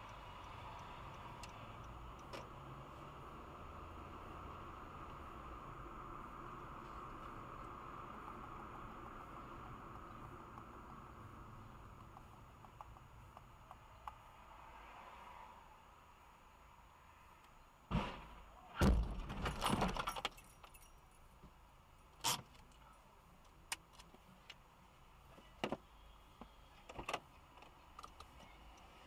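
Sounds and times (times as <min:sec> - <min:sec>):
car crash with rattling: 0:17.9 - 0:20.1.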